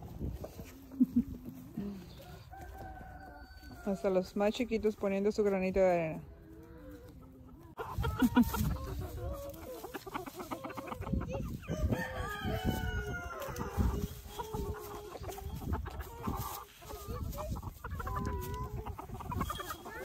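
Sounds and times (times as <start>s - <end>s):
chickens clucking: 0.0s - 20.0s
rooster crowing: 2.2s - 4.1s, 11.7s - 13.9s.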